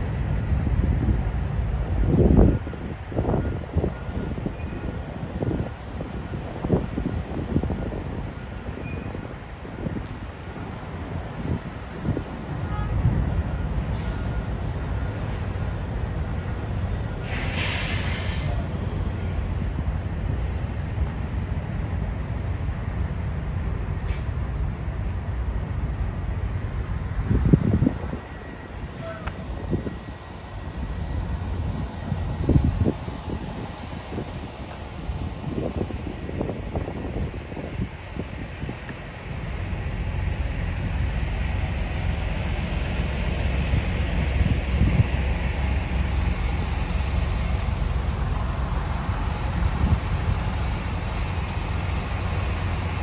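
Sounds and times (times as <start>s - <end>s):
wind buffeting microphone: 0.0s - 13.5s, 26.2s - 53.0s
traffic: 0.0s - 53.0s
diesel trucks idling: 9.5s - 53.0s
brief high hiss: 17.2s - 18.6s.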